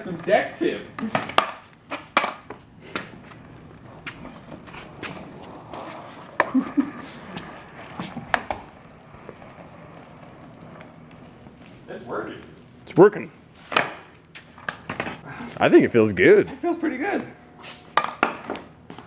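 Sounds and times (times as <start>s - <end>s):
skateboard wheels rumbling on concrete: 0.0s - 15.8s
skateboard clacks and knocks: 1.1s - 3.1s, 7.4s - 9.4s, 17.9s - 18.7s.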